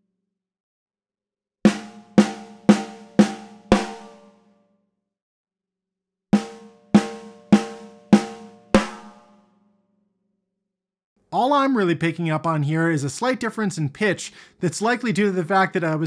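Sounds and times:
snare drum hits: 0:08.8 - 0:09.2.

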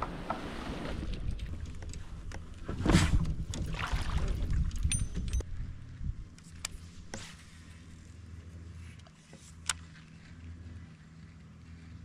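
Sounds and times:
hull scraping through grass and water: 0:00.0 - 0:01.3, 0:02.6 - 0:04.8.

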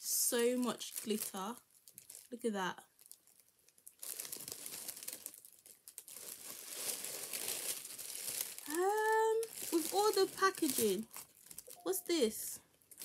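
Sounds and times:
paper rustling and crinkling: 0:04.0 - 0:11.8.

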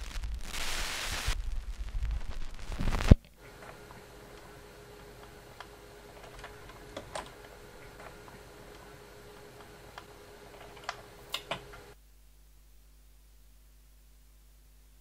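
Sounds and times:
vinyl crackles and clicks: 0:00.0 - 0:12.0
steady hum: 0:00.0 - 0:15.0
vinyl record surface noise: 0:00.0 - 0:15.0.

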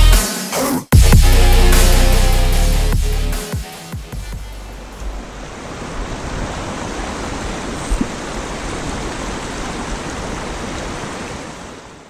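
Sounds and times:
stream flowing over riffles: 0:04.4 - 0:12.0.

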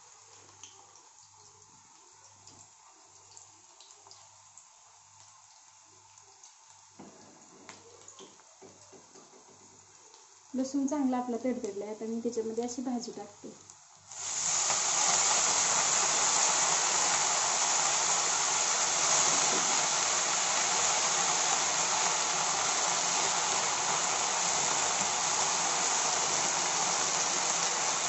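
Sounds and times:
greens sizzling in hot oil: 0:10.2 - 0:28.0.

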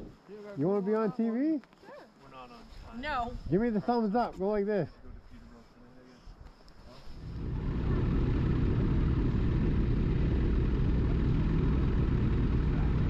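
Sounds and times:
snowmobile engine starting and idling: 0:07.1 - 0:13.0.

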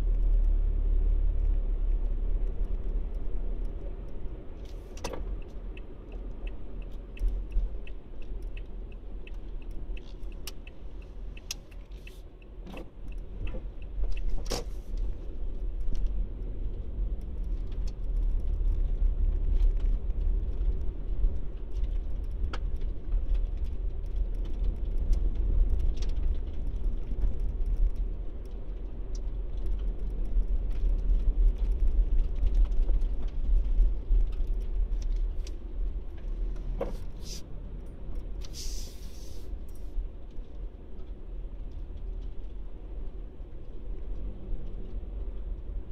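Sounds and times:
car engine and tyre rumble: 0:00.0 - 0:45.9.

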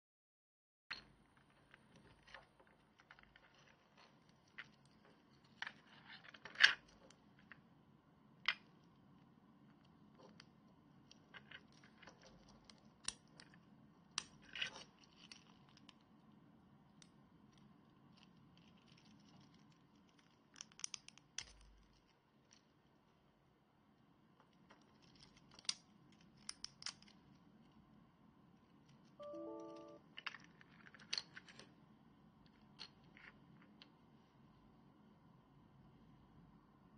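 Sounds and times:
faint low hum: 0:00.9 - 0:36.9
plastic parts clicking and rubbing: 0:09.8 - 0:16.1, 0:17.0 - 0:22.8, 0:24.4 - 0:27.8.

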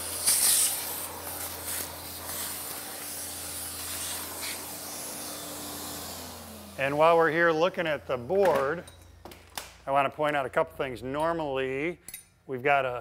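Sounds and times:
shop vacuum sucking sawdust: 0:00.0 - 0:08.4.

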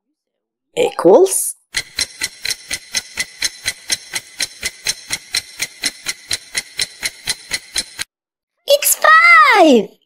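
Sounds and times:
timer ticking: 0:01.7 - 0:08.1.

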